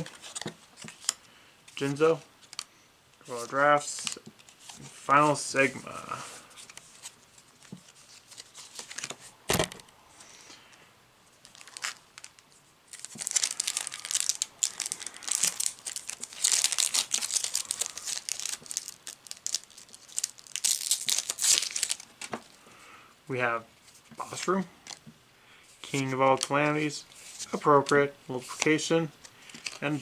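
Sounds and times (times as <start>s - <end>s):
foil wrapper crinkling: 11.4s - 22.2s.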